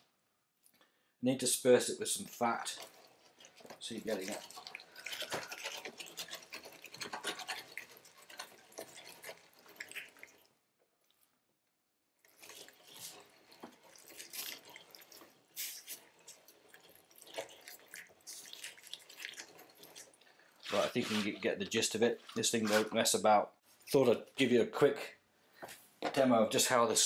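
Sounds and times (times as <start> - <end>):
hand-cranked meat mincer grinding: 2.4 - 10.3, 20.6 - 23.1
wet squelching and crackling clicks: 2.4 - 11.4, 12.2 - 23.2.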